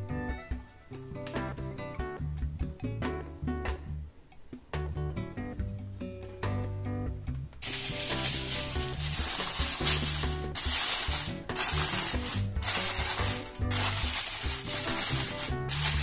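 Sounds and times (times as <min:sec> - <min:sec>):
background music: 0:00.0 - 0:16.0
aluminium foil crinkling: 0:07.6 - 0:16.0.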